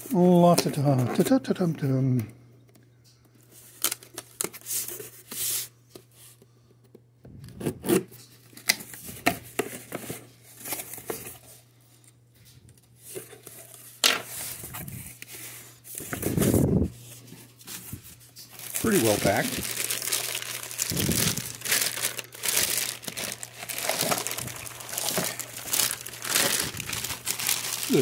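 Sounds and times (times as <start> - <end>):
tape tearing: 18.5 - 28.0.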